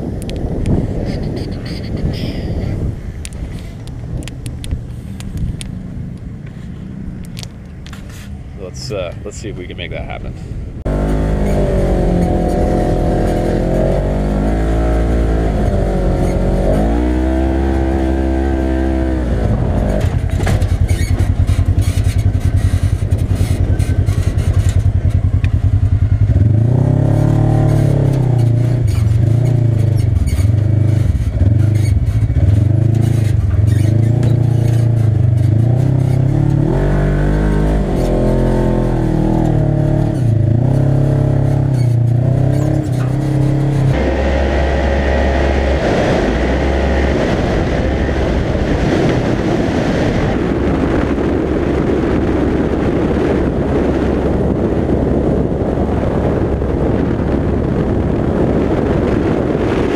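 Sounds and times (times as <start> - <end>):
vehicle engine revving: 0.0 - 59.9.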